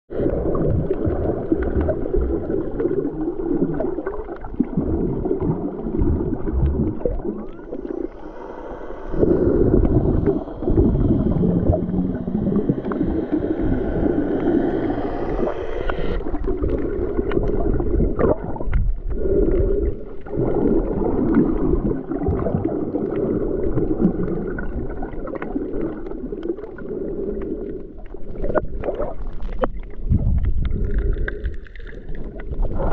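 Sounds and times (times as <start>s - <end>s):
underwater rumble and gurgling: 0.1s - 32.9s.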